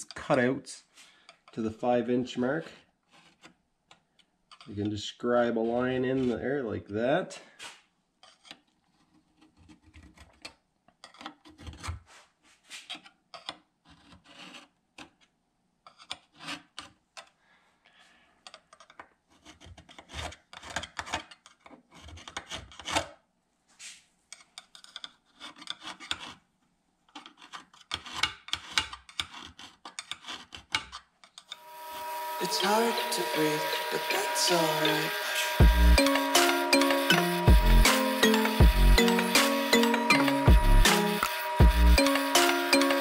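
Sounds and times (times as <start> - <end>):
scriber scratching metal: 3.0 - 3.6, 5.4 - 6.5, 27.2 - 43.0.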